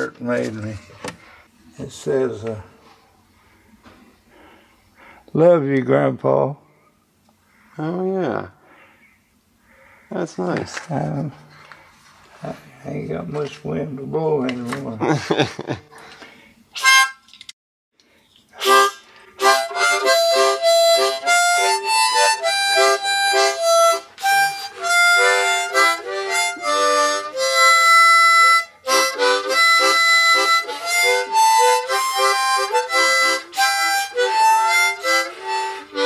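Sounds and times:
harmonica tune: 16.7 - 17.4, 18.6 - 36.0.

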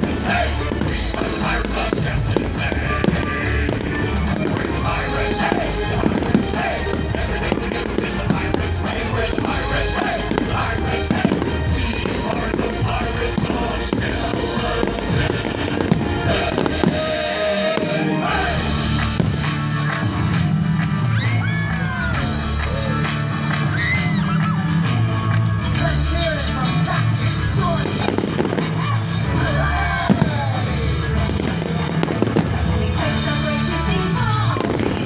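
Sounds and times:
fireworks popping and crackling: 0.0 - 35.0
song with bass line: 0.0 - 35.0.

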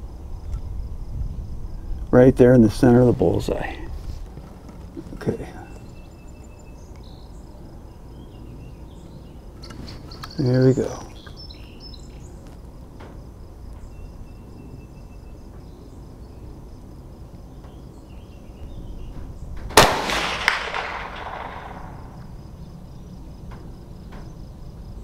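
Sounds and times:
rifle shot with echo: 19.7 - 22.3.

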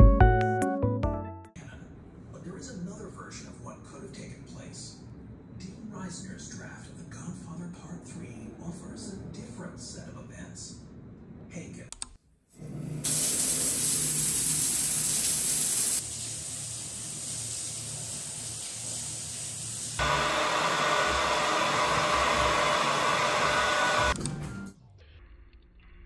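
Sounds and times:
shower water spraying: 12.6 - 20.0
hair dryer blowing: 20.0 - 24.2.

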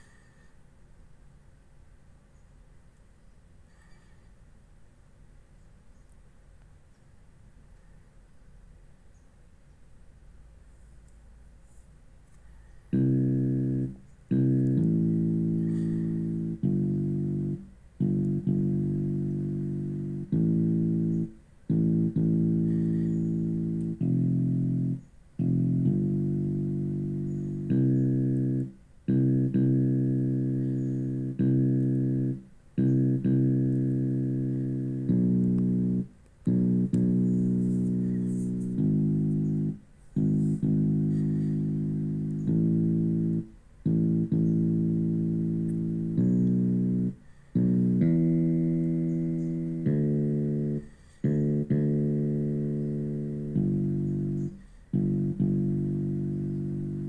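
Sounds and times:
keyboard playing low chords: 0.0 - 0.5, 12.5 - 57.0.

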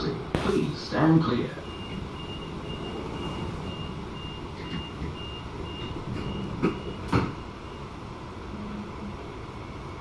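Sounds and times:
train door warning beeps: 1.6 - 8.2
train doors thudding shut: 1.7 - 7.6.

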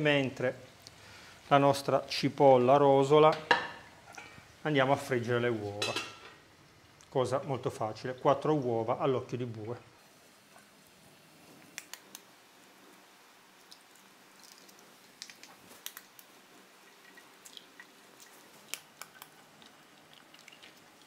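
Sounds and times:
food frying in hot oil: 9.9 - 21.0.

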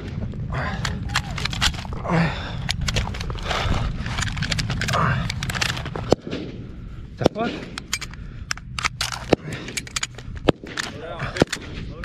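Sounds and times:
gunfire shots: 6.0 - 6.6.

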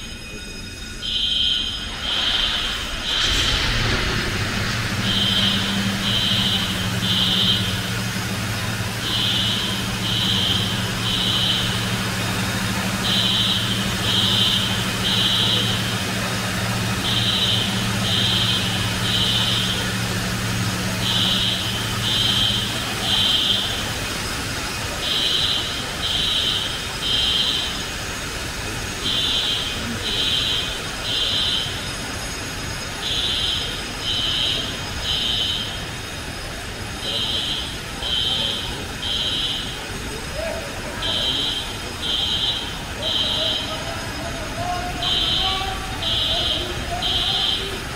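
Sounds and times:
low hum: 0.0 - 24.9
fire alarm beeping: 0.0 - 47.9
foam generators rushing: 0.0 - 47.9.

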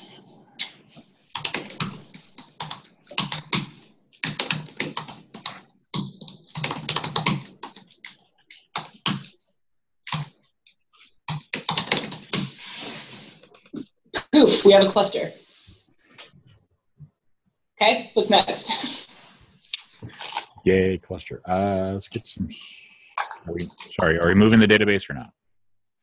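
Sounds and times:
typing on a keyboard: 1.3 - 9.4, 10.1 - 10.4, 11.3 - 12.5.

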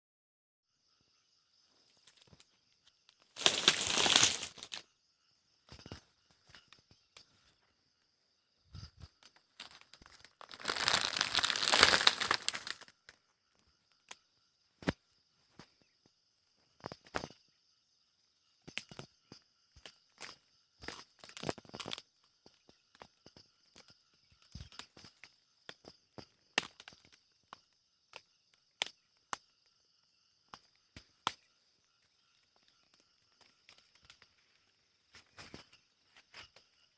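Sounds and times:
night insects droning: 0.7 - 36.9
dry grass and bristles rustling: 3.2 - 4.8, 8.8 - 12.9.

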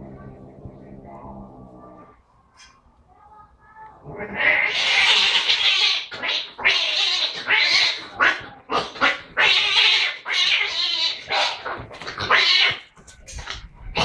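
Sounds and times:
cats screeching and hissing: 4.0 - 14.0.

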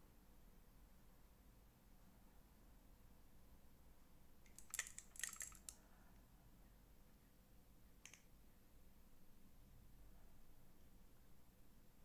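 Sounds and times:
light clicks and taps: 8.0 - 8.3.

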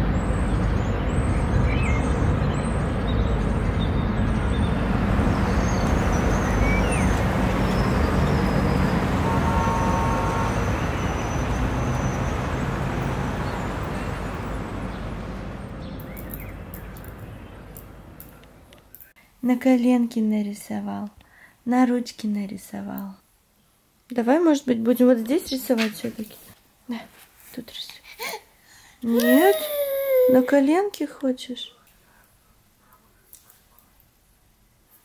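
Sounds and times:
birds chirping: 0.0 - 18.9
distant traffic rumble: 0.0 - 19.1
horn-like tone: 6.2 - 13.4.

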